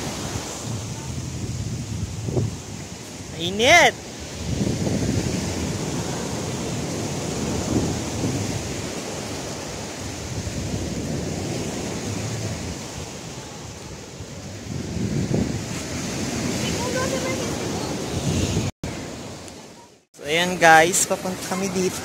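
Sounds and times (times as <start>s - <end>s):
wind rumbling on microphone: 0.0s - 3.4s, 4.0s - 19.5s
surf washing onto beach: 0.0s - 22.0s.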